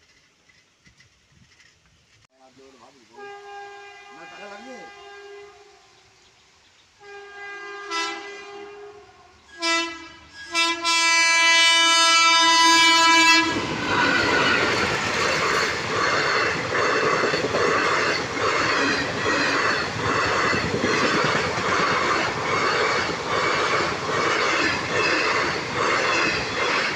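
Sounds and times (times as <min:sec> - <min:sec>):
wheels clacking over rail joints: 0:00.0 - 0:02.3, 0:12.8 - 0:26.9
train passing rush: 0:02.4 - 0:26.9
train horn blasts: 0:02.9 - 0:06.2, 0:07.0 - 0:26.9.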